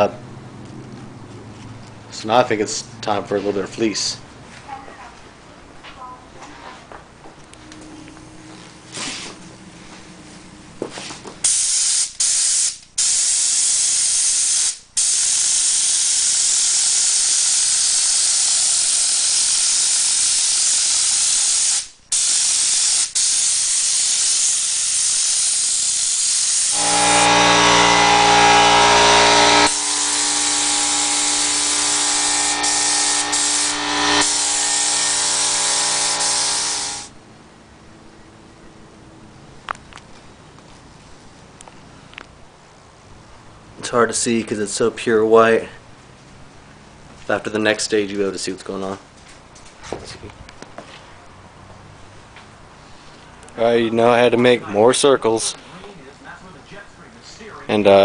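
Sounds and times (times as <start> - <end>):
spray nozzle hissing: 11.4 - 27.0, 29.6 - 37.1
steady pitched hum: 26.7 - 39.4.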